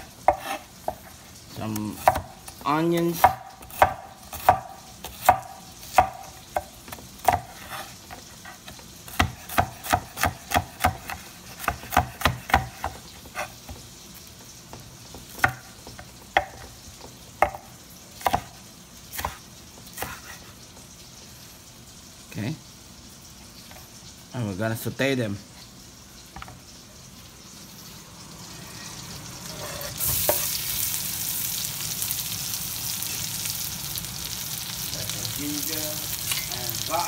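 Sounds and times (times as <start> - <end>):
knife chopping on wooden board: 0.2 - 1.2, 1.8 - 13.9, 14.7 - 20.5.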